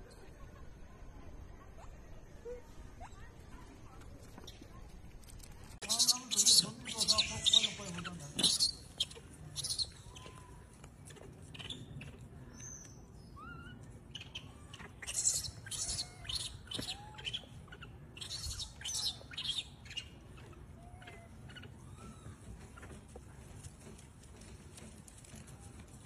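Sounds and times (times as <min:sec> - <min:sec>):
high-pitched squeaks and chirps: 0:05.8 - 0:23.0
macaque coo calls: 0:13.4 - 0:22.9.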